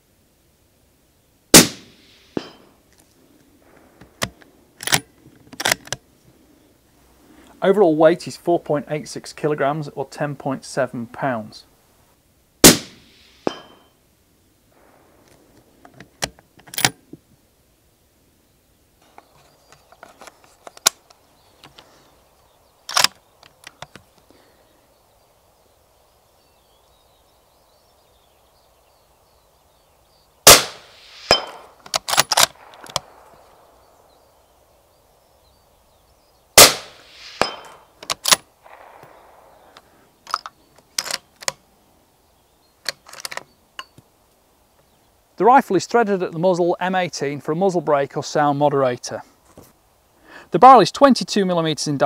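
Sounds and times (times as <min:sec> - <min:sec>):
rifle shots with echo: 0:01.5 - 0:02.7, 0:12.6 - 0:13.8, 0:30.4 - 0:34.2, 0:36.6 - 0:40.0
rifle bolt clicks: 0:22.9 - 0:24.0, 0:30.5 - 0:33.3.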